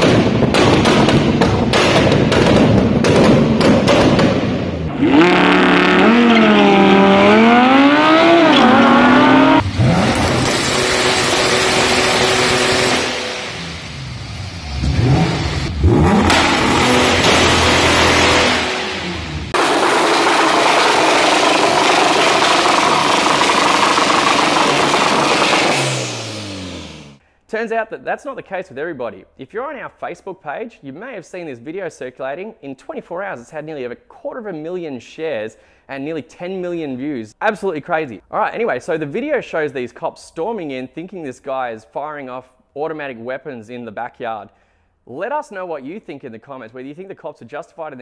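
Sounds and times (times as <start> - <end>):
sports car engine at high revs: 4.8 - 27.2
exhaust pops crackling: 16.2 - 18.4, 19.6 - 26.2.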